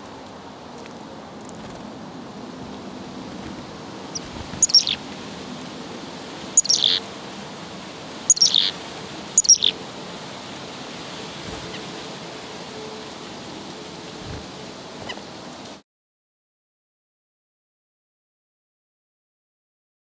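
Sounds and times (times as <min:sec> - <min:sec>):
chickadee scolding call: 0:03.6 - 0:05.1, 0:06.4 - 0:07.1, 0:08.2 - 0:09.8.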